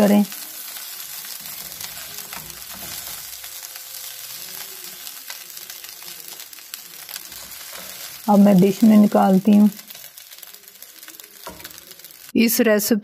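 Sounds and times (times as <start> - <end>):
rice sizzling in a pan: 0.0 - 12.4
spatula scraping and tapping pan: 1.0 - 3.4, 4.3 - 8.3, 9.8 - 12.0.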